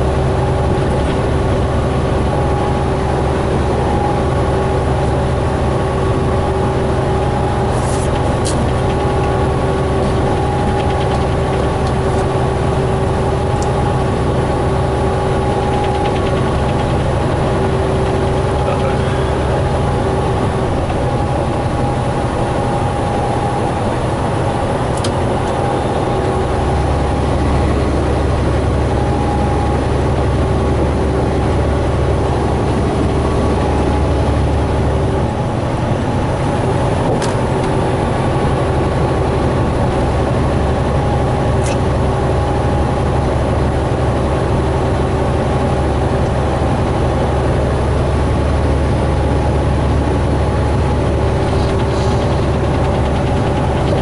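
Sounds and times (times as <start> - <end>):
diesel engine droning: 0.0 - 54.0
road and wind noise: 0.0 - 54.0
sharp clicks in cab: 8.1 - 9.4, 24.9 - 25.6, 37.0 - 37.8, 41.6 - 41.8.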